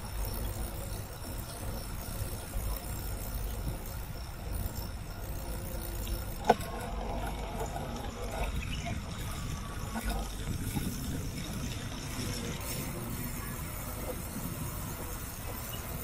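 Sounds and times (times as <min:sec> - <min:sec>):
bicycle tyres rolling on pavement: 0:00.0 - 0:16.0
wind buffeting microphone: 0:06.2 - 0:16.0.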